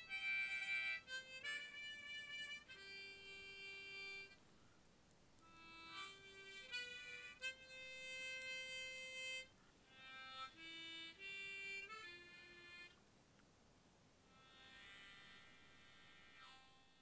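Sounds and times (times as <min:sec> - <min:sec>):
harmonica playing slow tune: 0:00.0 - 0:04.4, 0:05.4 - 0:13.0, 0:14.3 - 0:17.0.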